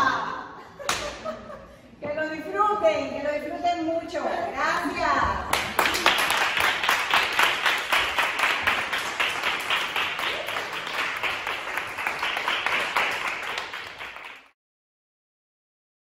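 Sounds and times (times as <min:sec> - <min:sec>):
group clapping in rhythm: 0:00.8 - 0:01.2, 0:05.5 - 0:14.6.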